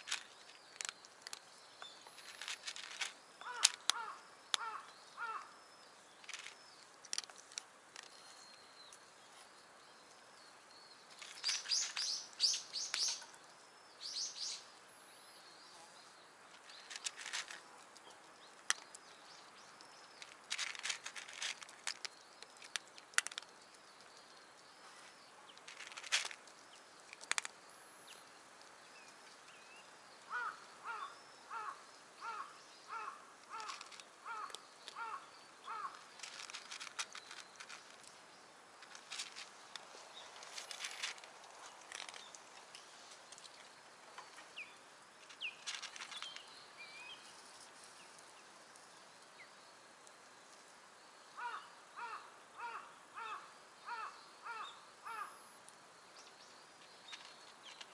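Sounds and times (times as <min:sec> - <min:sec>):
birds singing: 0:00.0 - 0:07.3, 0:08.0 - 0:20.4, 0:28.0 - 0:38.5, 0:39.8 - 0:49.8, 0:51.3 - 0:55.5
branch rustling over dry leaves: 0:02.0 - 0:04.1, 0:11.1 - 0:13.3, 0:20.2 - 0:23.3, 0:24.8 - 0:27.4, 0:35.7 - 0:43.6, 0:45.2 - 0:46.4.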